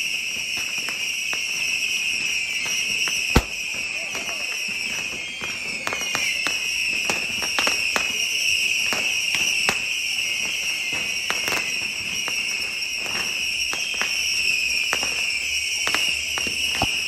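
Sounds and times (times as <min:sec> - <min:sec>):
bottle rockets whistling: 0:00.0 - 0:17.0
sharp pops: 0:03.3 - 0:03.7.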